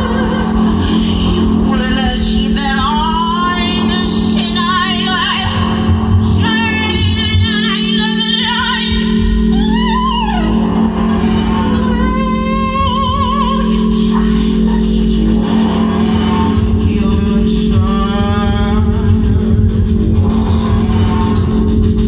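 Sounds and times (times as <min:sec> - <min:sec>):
woman singing with vibrato: 0:00.0 - 0:21.8.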